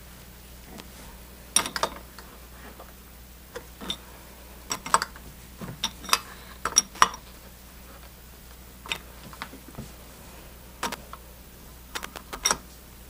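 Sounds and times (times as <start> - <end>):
wrench clinking on metal nuts: 1.6 - 2.0, 12.4 - 12.6.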